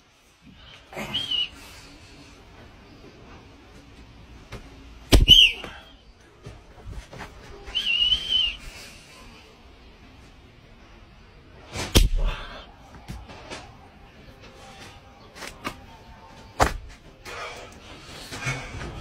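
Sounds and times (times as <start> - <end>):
high whistle-like tone: 5.2 - 5.9, 7.6 - 8.7
rubber band snap: 11.8 - 12.3.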